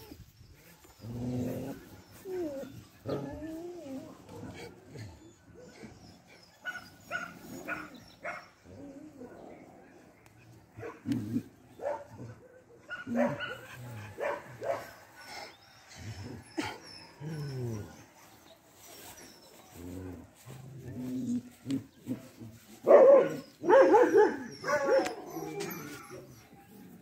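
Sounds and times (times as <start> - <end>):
dogs barking: 6.6 - 8.6, 11.8 - 15.0, 22.2 - 25.7.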